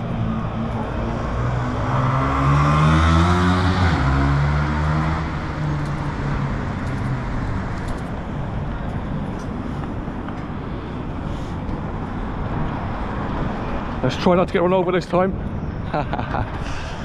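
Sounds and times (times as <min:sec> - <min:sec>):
car accelerating past: 0:00.0 - 0:06.8
street traffic noise: 0:00.0 - 0:17.0.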